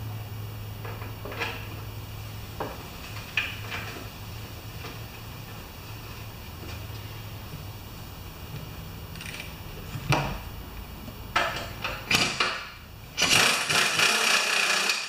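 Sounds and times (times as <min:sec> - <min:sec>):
pneumatic wrench running in bursts: 0:13.1 - 0:15.0.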